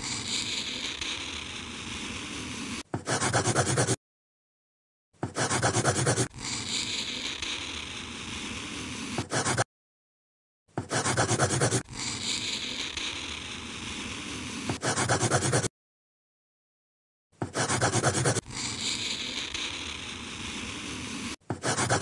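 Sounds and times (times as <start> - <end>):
pencil scribbling on paper: 0.0 - 1.0, 2.5 - 4.0, 5.2 - 7.6, 8.8 - 9.7, 10.8 - 13.2, 14.5 - 15.7, 17.4 - 22.0.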